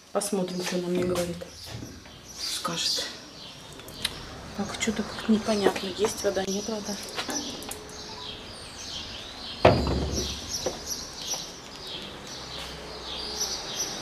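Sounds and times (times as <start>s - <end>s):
street background noise: 0.0s - 14.0s
small birds chirping: 0.1s - 14.0s
thump: 9.6s - 10.8s.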